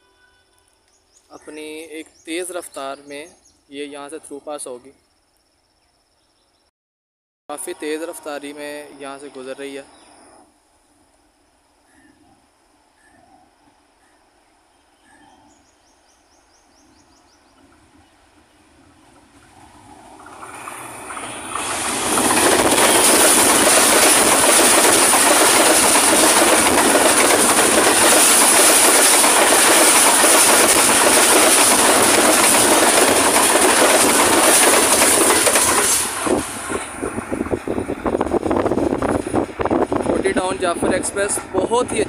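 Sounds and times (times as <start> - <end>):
train passing at speed: 17.2 - 42.0
wheels rushing on rails: 17.5 - 42.0
coach wheels clattering: 19.2 - 42.0.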